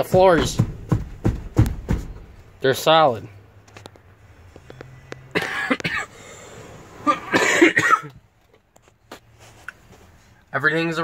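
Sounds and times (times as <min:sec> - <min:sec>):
man coughing: 0:05.3 - 0:06.2, 0:07.0 - 0:08.2.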